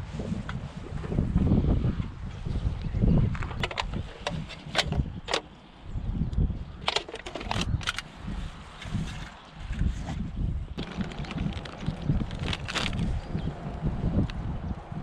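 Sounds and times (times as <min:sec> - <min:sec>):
wind buffeting microphone: 0:00.0 - 0:15.0
sharp clicks and crackles: 0:06.8 - 0:08.1, 0:10.8 - 0:13.2.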